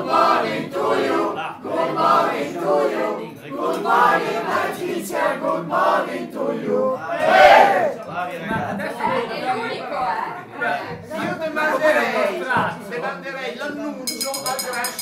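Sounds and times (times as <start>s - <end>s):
men and women singing in chorus: 0.0s - 7.9s.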